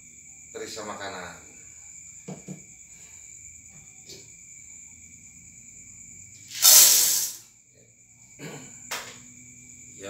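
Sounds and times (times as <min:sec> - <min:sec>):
corn kernels poured into metal kettle: 0:06.5 - 0:07.4.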